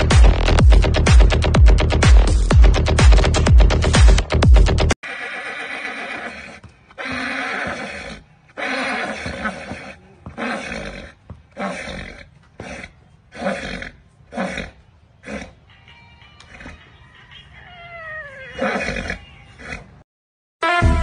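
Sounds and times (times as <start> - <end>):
loud animal calls: 16.4 - 19.9.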